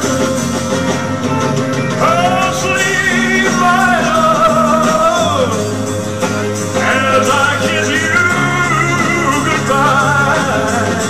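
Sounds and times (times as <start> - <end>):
backing track with bass line: 0.0 - 11.0
man singing a slow ballad: 2.0 - 5.8, 6.7 - 11.0.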